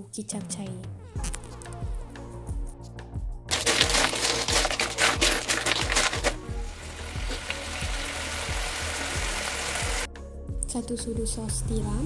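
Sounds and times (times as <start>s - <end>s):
shellfish sizzling in a wok: 3.5s - 10.1s.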